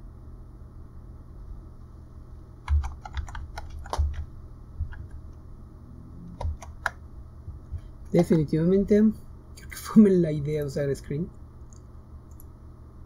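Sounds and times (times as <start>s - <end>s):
typing on a computer keyboard: 2.6s - 4.2s, 6.4s - 7.0s.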